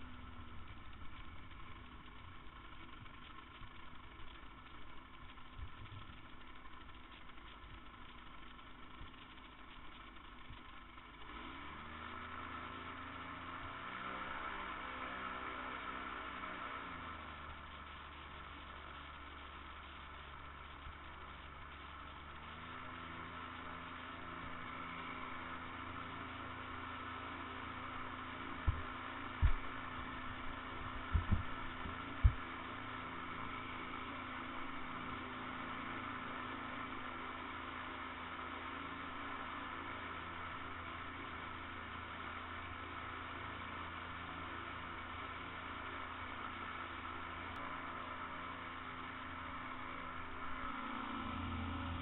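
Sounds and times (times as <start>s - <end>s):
engine droning: 0.0s - 52.0s
sharp low thumps: 29.4s - 30.1s, 30.8s - 32.4s.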